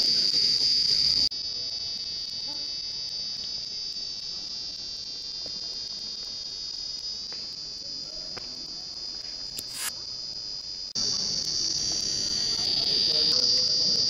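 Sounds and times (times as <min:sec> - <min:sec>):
high-pitched electronic whine: 0:00.0 - 0:14.0
burst of hiss: 0:09.6 - 0:10.1.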